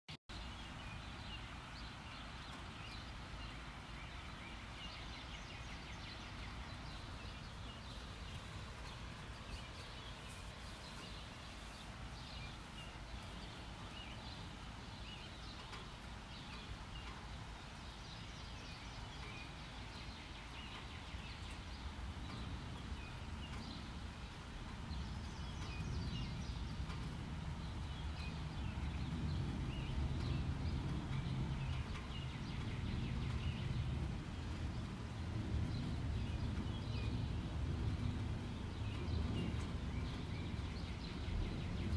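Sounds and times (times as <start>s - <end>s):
gentle rain hissing: 0.3s - 41.9s
small birds chirping: 0.3s - 41.9s.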